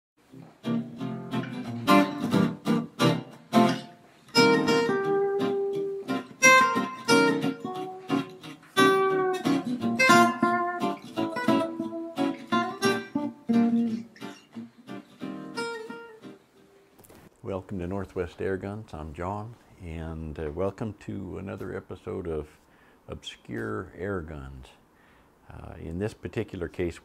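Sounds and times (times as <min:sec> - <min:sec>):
acoustic guitar strumming and plucking: 0:00.2 - 0:17.2.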